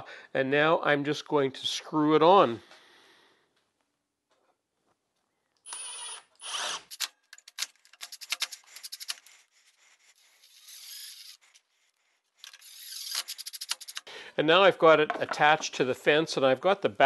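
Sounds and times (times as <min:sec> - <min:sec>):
impact driver motor: 0:05.7 - 0:07.1, 0:10.4 - 0:11.6
soft motor whir: 0:08.3 - 0:14.0.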